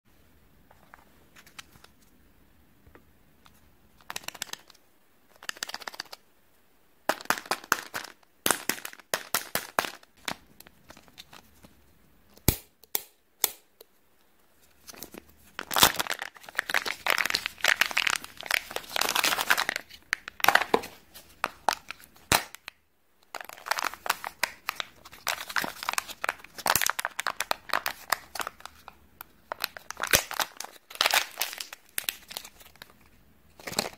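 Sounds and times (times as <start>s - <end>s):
plastic capsule clicking open: 4.0s - 4.8s
wrapper crinkling and tearing: 14.8s - 33.9s.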